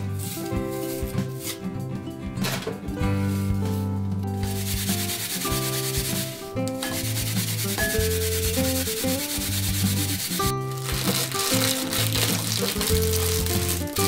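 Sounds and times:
yam grated on plastic grater: 4.4 - 14.0.

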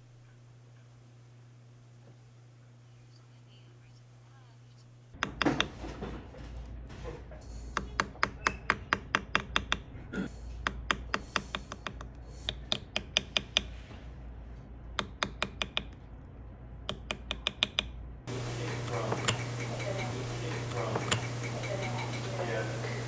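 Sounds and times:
beading tool clicking on metal: 15.0 - 16.0, 16.8 - 18.0.

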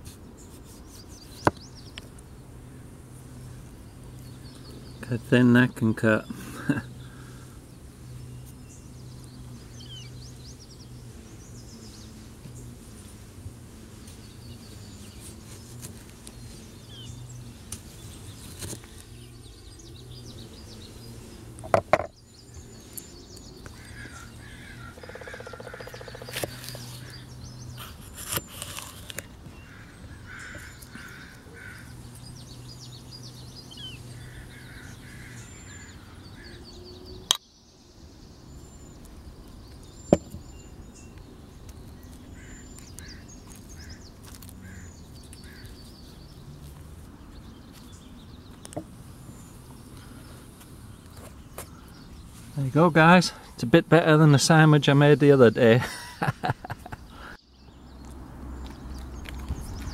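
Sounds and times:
birds chirping: 0.2 - 59.9
crows cawing: 23.7 - 26.4, 29.6 - 32.0, 34.1 - 36.6, 42.3 - 44.0, 44.6 - 45.7.

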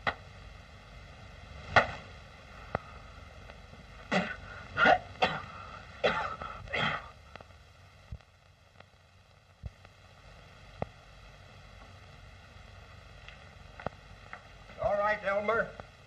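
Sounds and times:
old film soundtrack hiss: 0.0 - 16.0
faint clicks: 7.3 - 9.0, 13.2 - 14.6.

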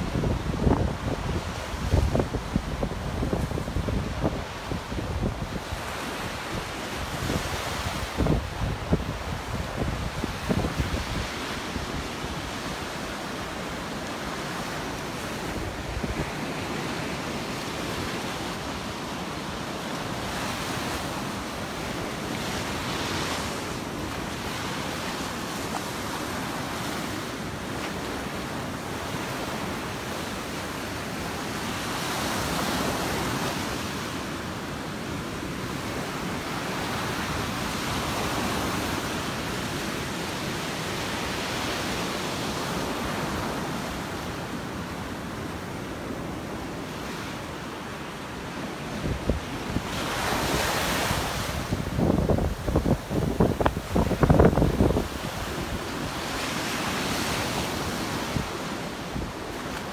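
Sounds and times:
wind buffeting microphone: 0.0 - 12.6, 49.0 - 56.2
waves washing up the shore: 0.0 - 59.9.

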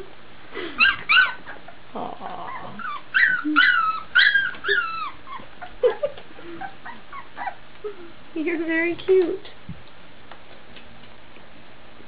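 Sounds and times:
puppy whimpering: 0.8 - 8.2.

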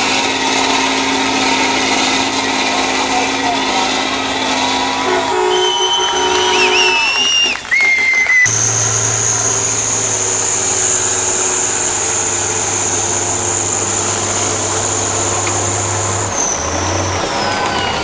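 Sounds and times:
truck engine running hard: 0.0 - 18.0
high whine: 8.4 - 18.0.

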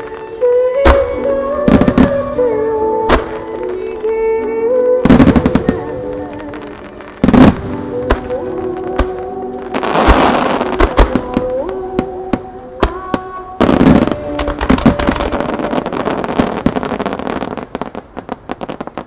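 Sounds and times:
music: 0.0 - 19.0.

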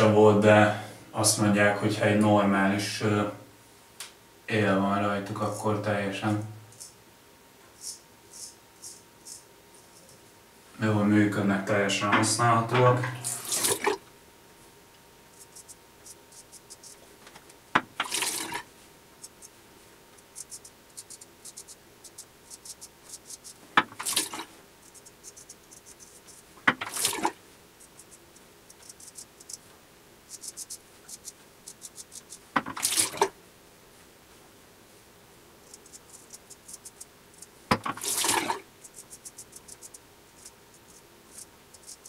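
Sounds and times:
razor scraping stubble: 15.3 - 17.0, 19.2 - 19.6, 20.2 - 27.1, 27.8 - 29.6, 30.3 - 33.1, 35.6 - 42.0.

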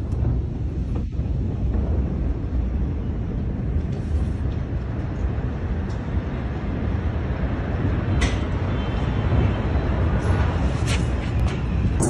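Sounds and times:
low explosion rumble: 0.0 - 5.8.

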